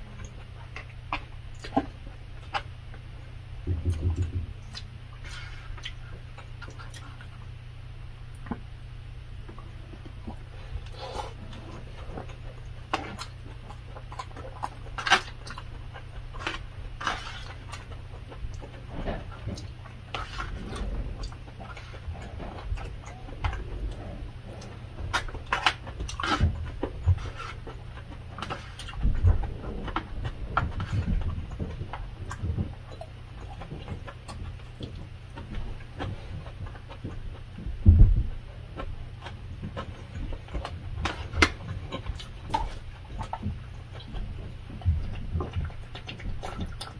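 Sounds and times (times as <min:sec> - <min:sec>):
chewing and mouth sounds: 0:00.0 - 0:07.6, 0:09.4 - 0:46.9
low steady hum: 0:00.0 - 0:46.9.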